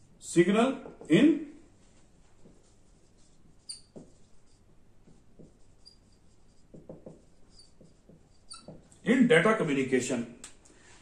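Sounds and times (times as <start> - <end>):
marker pen on whiteboard: 0.0 - 9.8
marker squeaks: 3.0 - 8.9.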